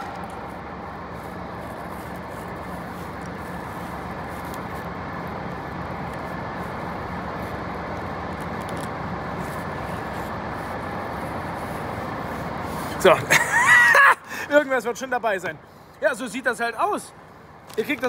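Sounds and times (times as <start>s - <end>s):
low hum: 0.0s - 12.8s
road traffic rumble: 0.0s - 18.0s.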